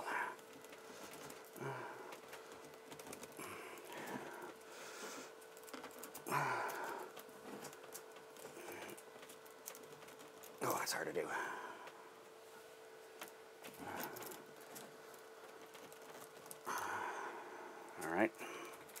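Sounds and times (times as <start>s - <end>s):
faint steady hum: 0.0s - 19.0s
person exhaling with effort: 6.2s - 7.1s, 16.6s - 17.8s.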